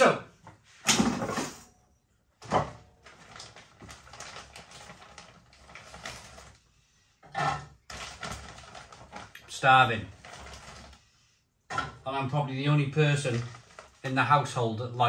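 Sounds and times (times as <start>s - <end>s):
plastic packaging crackling: 2.9s - 6.6s, 7.8s - 11.0s, 13.1s - 14.3s.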